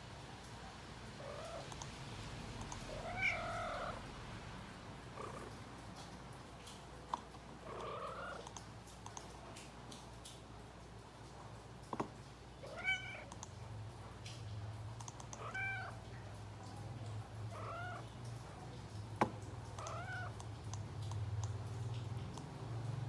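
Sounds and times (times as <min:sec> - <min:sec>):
sharp clicks: 0:01.6 - 0:02.0, 0:08.4 - 0:10.4, 0:13.3 - 0:13.6, 0:15.0 - 0:15.5
cat meowing: 0:02.9 - 0:04.1, 0:07.6 - 0:08.4, 0:12.6 - 0:13.3, 0:15.4 - 0:16.1, 0:17.5 - 0:18.1, 0:19.7 - 0:20.4.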